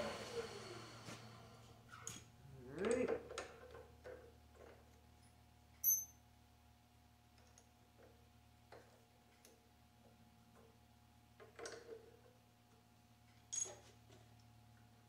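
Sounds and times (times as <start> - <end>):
faint machine-shop hum: 0.0 - 15.0
sharp ringing metal clink: 5.8 - 6.2.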